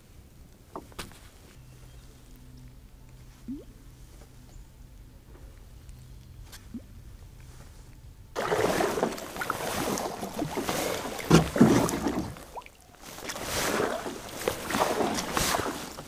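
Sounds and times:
paddle strokes splashing water: 0:08.4 - 0:16.0.

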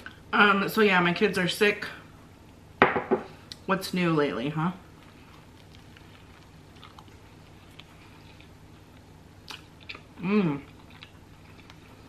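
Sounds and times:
person chewing food: 0:05.0 - 0:12.0
person humming mm: 0:10.2 - 0:10.7.

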